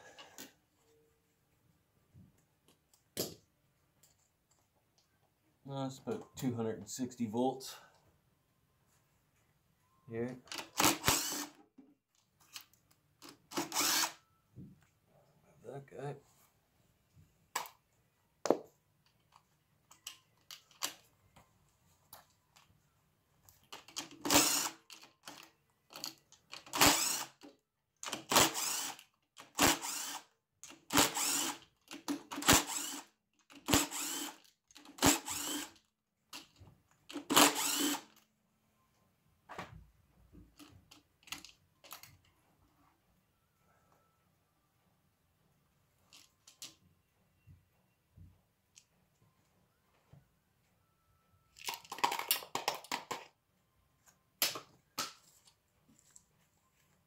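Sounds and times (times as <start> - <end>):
cordless drill spinning: 10.6 - 11.6, 13.5 - 14.2, 24.2 - 24.8, 26.7 - 27.4, 28.1 - 30.3, 30.9 - 31.6, 32.3 - 35.8, 37.1 - 38.2.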